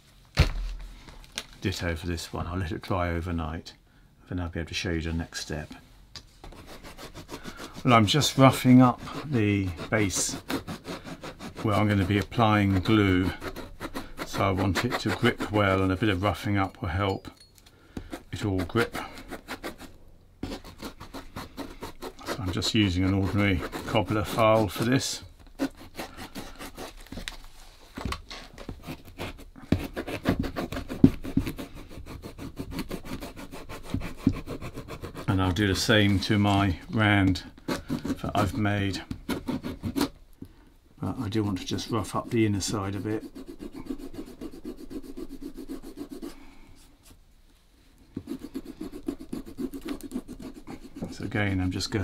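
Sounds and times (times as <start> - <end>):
file rasping on leather: 6.5 - 16.4, 18.0 - 27.1, 28.8 - 36.3, 37.3 - 40.2, 41.6 - 46.4, 48.2 - 51.5.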